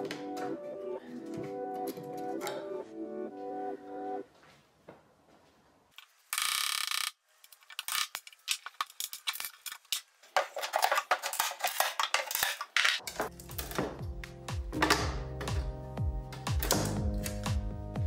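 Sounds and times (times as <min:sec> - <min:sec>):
background music: 0:00.0 - 0:04.3, 0:13.0 - 0:18.0.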